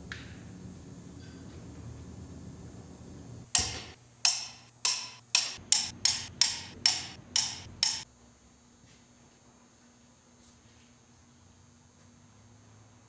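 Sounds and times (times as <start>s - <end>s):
torque wrench clicking: 3.6s - 8.1s.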